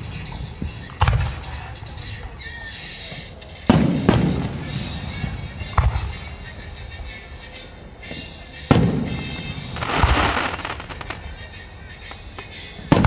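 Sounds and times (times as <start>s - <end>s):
firework shells booming: 0.0s - 1.6s, 3.7s - 6.4s, 8.7s - 11.3s, 12.3s - 13.0s.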